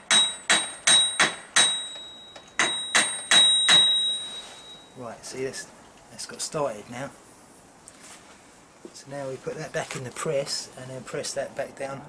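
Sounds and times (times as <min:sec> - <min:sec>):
hammer striking metal with ringing: 0:00.0 - 0:05.0.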